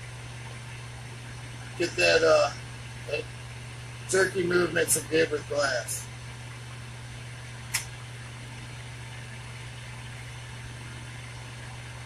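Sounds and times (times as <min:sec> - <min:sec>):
low hum: 0:00.0 - 0:12.0
short click: 0:07.7 - 0:07.9.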